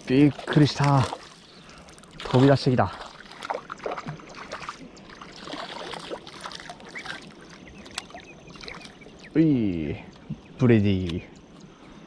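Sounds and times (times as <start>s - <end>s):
light water splashing: 0.0s - 9.4s
small clicks at water surface: 0.4s - 9.0s.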